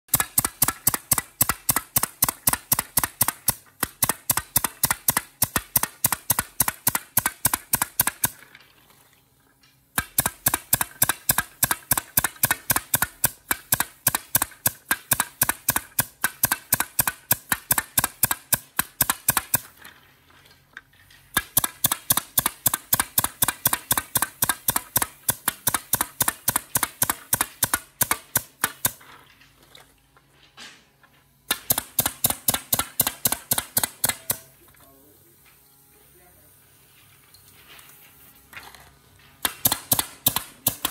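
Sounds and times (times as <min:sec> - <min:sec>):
pneumatic nailer firing: 0:00.1 - 0:08.6, 0:09.9 - 0:19.8, 0:21.3 - 0:29.2, 0:31.5 - 0:34.6, 0:39.4 - 0:40.9.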